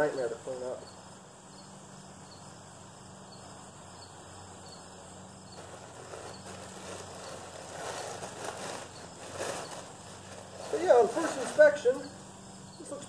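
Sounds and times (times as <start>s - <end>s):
plastic bag rustling: 5.6s - 12.0s
chain mail rings clinking: 5.6s - 12.1s.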